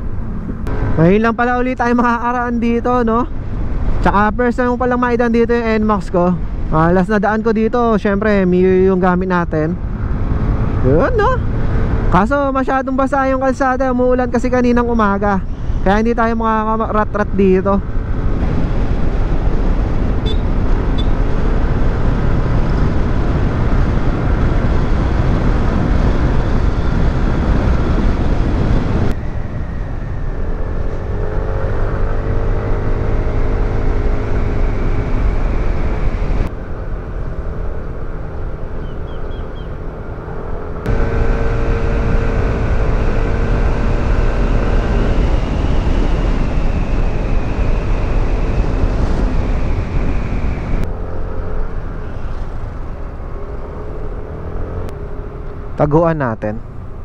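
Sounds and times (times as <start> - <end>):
wind rushing over microphone: 0.0 - 57.0
scooter engine drone: 17.4 - 57.0.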